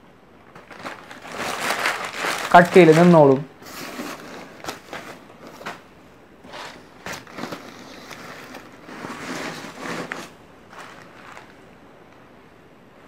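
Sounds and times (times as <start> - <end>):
tinsel and paper rustling: 0.6 - 5.8, 6.5 - 11.6.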